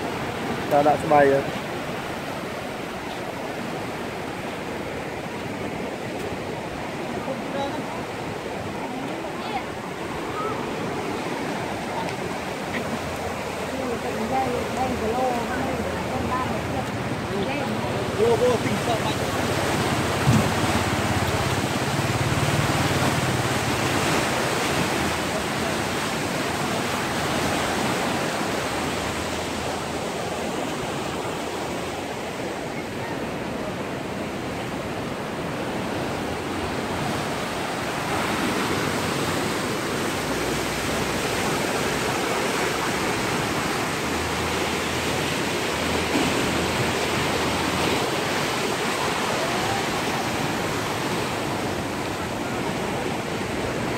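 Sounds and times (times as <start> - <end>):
water rushing through weir gates: 0.0 - 32.4.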